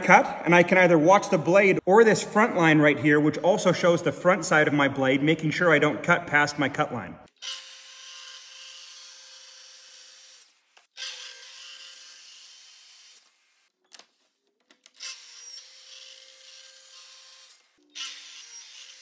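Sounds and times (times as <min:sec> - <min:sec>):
circular saw cutting wood: 0:07.3 - 0:13.7, 0:14.8 - 0:19.0.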